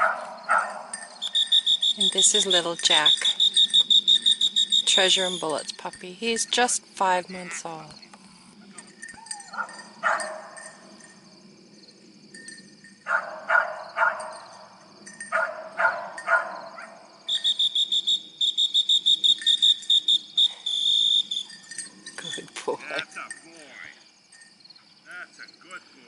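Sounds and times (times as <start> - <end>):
dog whistle toots: 1.2 - 5.6, 17.3 - 21.6.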